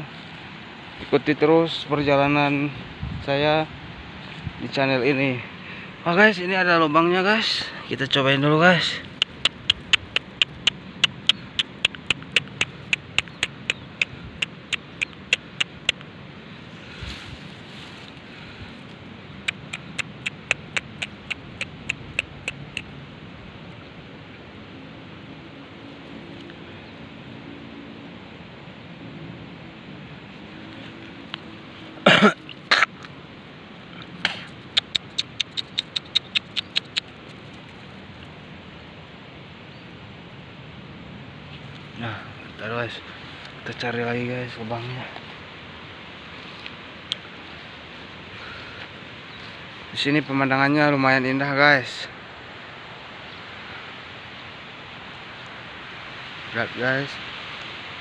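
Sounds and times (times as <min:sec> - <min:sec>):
man coughing: 0:32.0 - 0:32.9.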